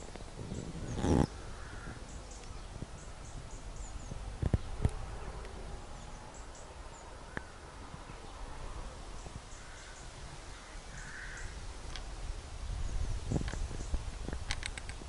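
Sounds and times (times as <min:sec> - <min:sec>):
faint birds chirping: 0:00.0 - 0:15.0
sharp handling clicks: 0:14.4 - 0:15.0.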